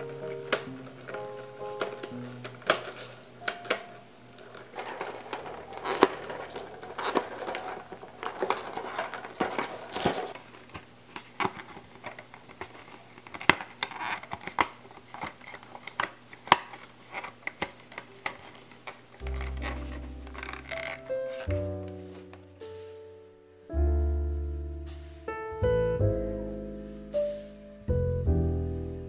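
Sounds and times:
wire coils clicking and rattling: 0.0 - 10.5, 11.4 - 21.5
paper and plastic crinkling: 0.0 - 22.9.

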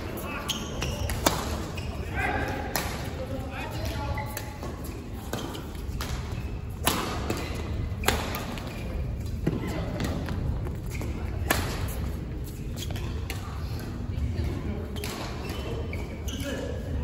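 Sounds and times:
rackets smacking shuttlecock: 4.3 - 8.7.

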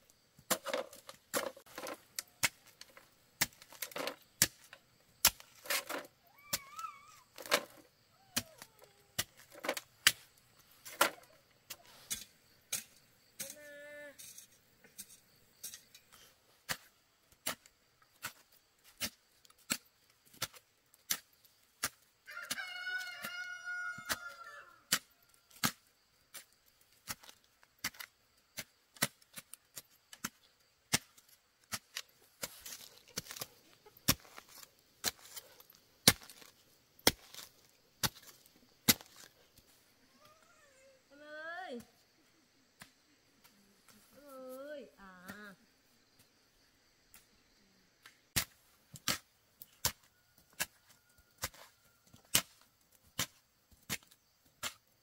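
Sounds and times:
rooster crowing: 22.3 - 24.9.

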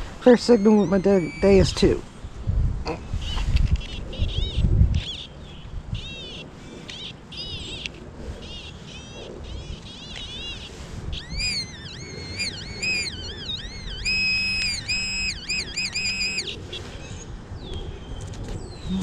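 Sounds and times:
metal detector warbling tones: 0.3 - 2.0, 11.1 - 16.6
metal detector steady beeps: 10.0 - 16.6.

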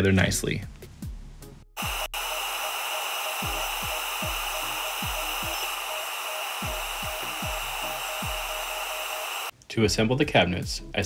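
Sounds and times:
background music with low beat: 0.4 - 2.5, 3.4 - 9.1, 9.8 - 11.0
laser engraver high tone: 1.8 - 9.5.

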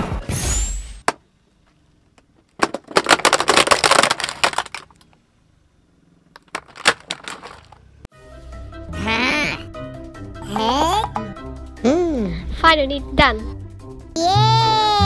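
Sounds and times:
plastic cracking and snapping: 2.2 - 5.2, 6.4 - 7.8.

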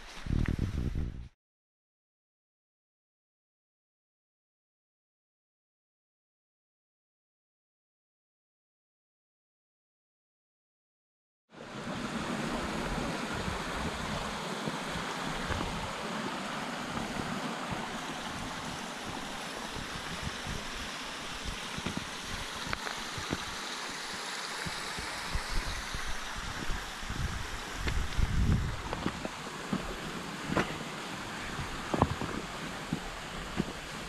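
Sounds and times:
wind buffeting microphone: 0.2 - 1.3, 12.6 - 16.1, 16.7 - 23.6, 24.6 - 34.0
stream water rushing: 11.6 - 34.0.

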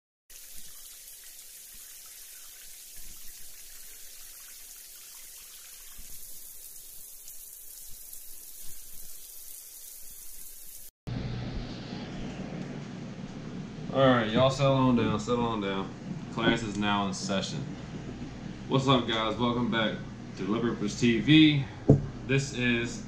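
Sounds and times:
water-like hissing: 0.3 - 10.9.

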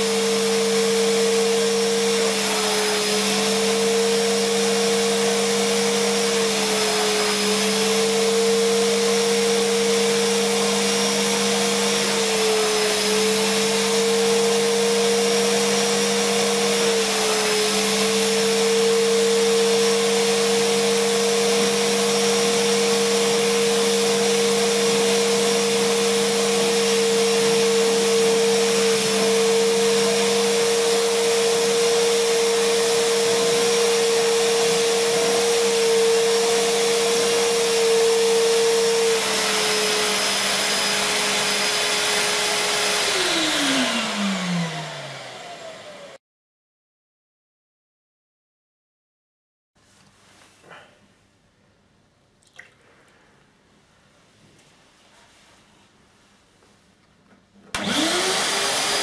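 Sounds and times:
vacuum cleaner whining: 0.0 - 46.2, 57.6 - 59.0.

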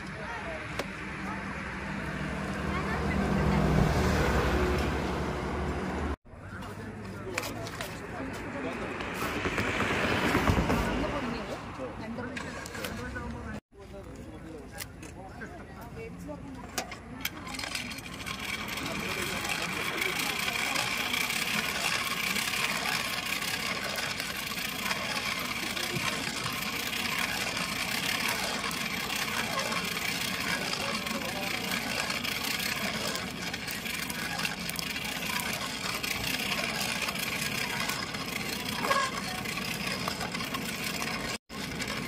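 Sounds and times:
hand-cranked blower whirring: 16.7 - 42.0.

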